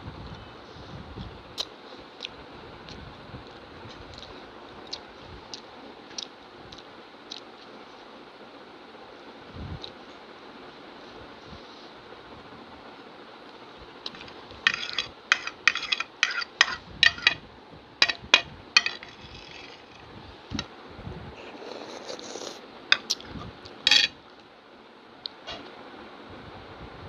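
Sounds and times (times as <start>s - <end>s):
metal spoon scraping ceramic plate: 14.1s - 17.4s, 18.0s - 20.1s, 23.9s - 24.2s.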